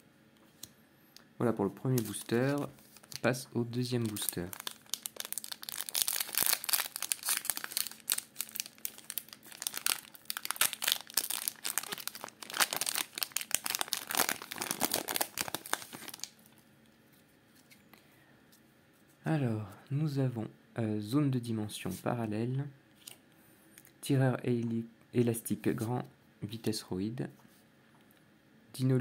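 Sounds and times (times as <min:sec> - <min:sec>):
foil wrapper tearing and crinkling: 0:02.0 - 0:03.3, 0:04.0 - 0:16.4.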